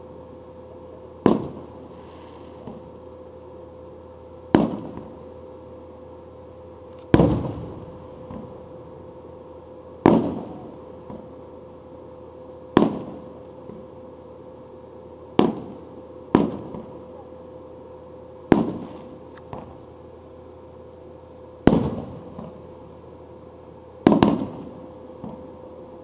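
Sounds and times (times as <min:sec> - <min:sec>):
firework shells bursting: 0:24.0 - 0:24.6.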